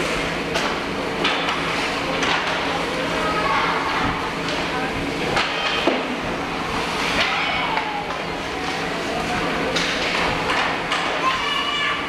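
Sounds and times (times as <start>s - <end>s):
sticks and pucks clacking: 0.5s - 2.7s, 9.7s - 11.2s.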